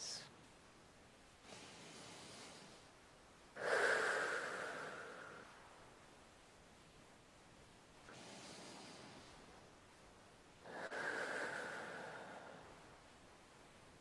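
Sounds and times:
woman breathing deeply: 0:01.4 - 0:05.9, 0:08.0 - 0:09.7, 0:10.6 - 0:13.3.

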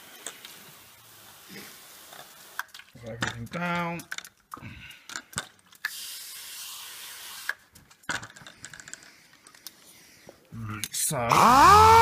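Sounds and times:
handling clicks and knocks: 0:02.6 - 0:05.8
spray bottle hissing: 0:05.8 - 0:07.6.

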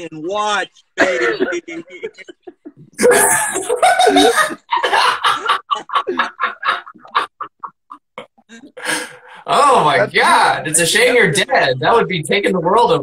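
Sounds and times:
people laughing: 0:01.0 - 0:09.3.

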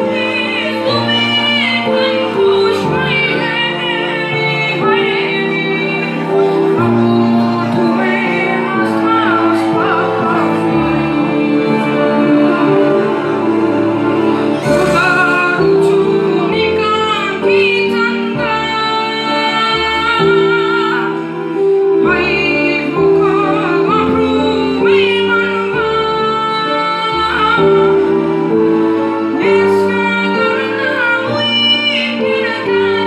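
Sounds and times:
synthesizer accompaniment: 0:00.0 - 0:33.0.

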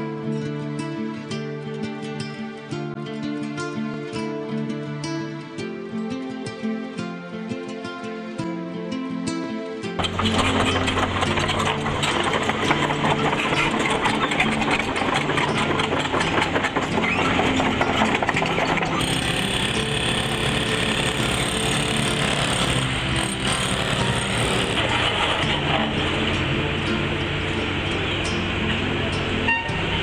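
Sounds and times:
rapid machinery clattering: 0:10.0 - 0:27.9
machinery engine hum: 0:10.0 - 0:30.0.

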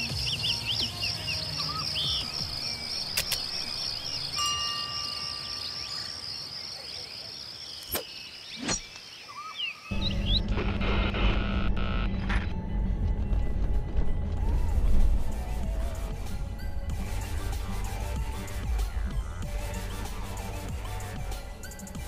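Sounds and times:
music: 0:00.0 - 0:04.3, 0:09.9 - 0:22.0
pulsing insect chorus: 0:00.0 - 0:10.4
sharp clicks: 0:03.1 - 0:03.6.

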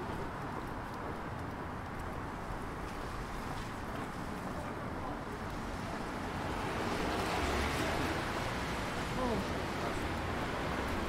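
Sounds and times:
wet street noise: 0:00.0 - 0:11.0
faint voices: 0:09.1 - 0:10.2.

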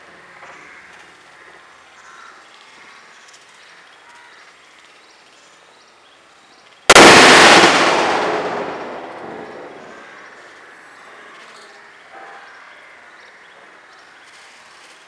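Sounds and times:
firecracker bang: 0:06.9 - 0:10.3.

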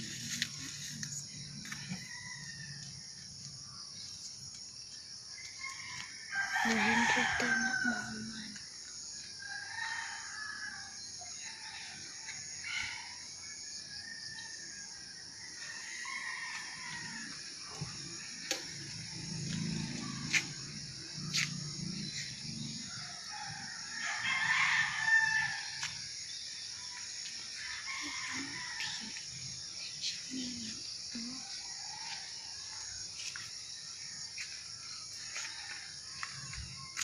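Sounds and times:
rooster crowing: 0:05.6 - 0:08.4, 0:09.4 - 0:13.2, 0:15.4 - 0:17.4, 0:22.6 - 0:25.9, 0:27.5 - 0:29.2.

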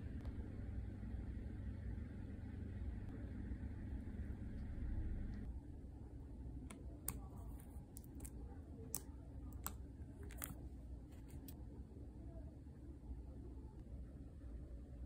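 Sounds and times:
low background rumble: 0:00.0 - 0:15.0.

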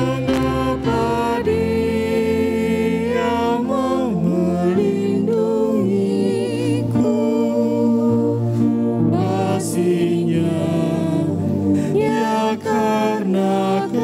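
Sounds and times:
person singing slow worship song: 0:00.0 - 0:14.0.

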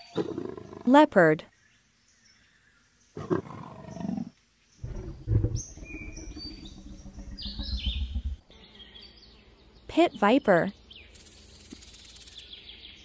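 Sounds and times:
faint birds chirping: 0:00.0 - 0:13.0
leopard growling: 0:03.2 - 0:08.5.

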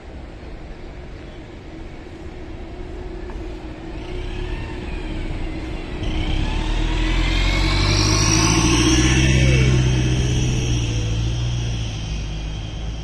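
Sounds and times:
bus passing by: 0:00.0 - 0:13.0
rising whine: 0:03.3 - 0:13.0.

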